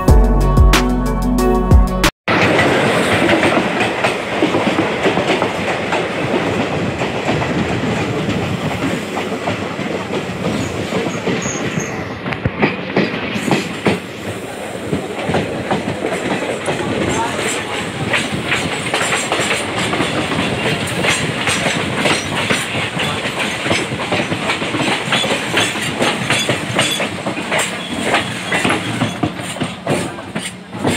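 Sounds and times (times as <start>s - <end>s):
train coaches rushing past: 2.3s - 30.9s
wheels clattering over rail joints: 14.9s - 30.9s.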